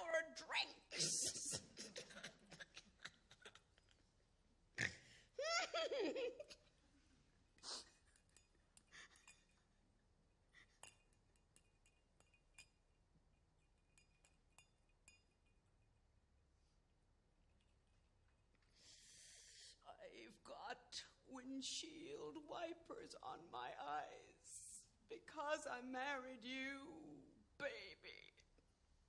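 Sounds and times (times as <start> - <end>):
woman laughing: 5.4 - 6.6.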